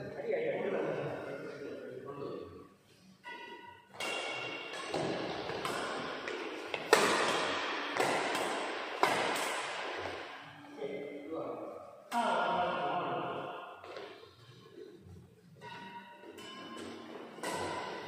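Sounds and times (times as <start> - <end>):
badminton rackets hitting shuttlecock: 3.2 - 10.6, 15.6 - 18.0.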